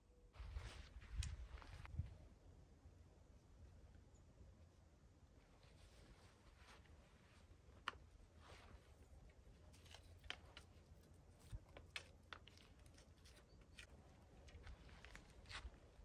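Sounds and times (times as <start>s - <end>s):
wooden bow clicks and rustles: 7.6s - 16.0s.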